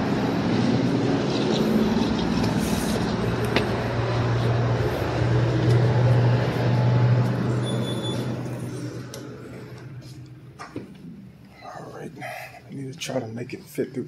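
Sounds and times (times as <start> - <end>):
rumbling background: 0.0 - 7.6
low mechanical hum: 0.0 - 13.6.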